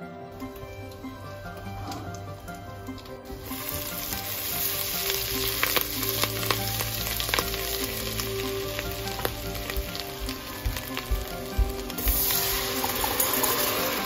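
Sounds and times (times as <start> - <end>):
butter sizzling in a wok: 3.3 - 14.0.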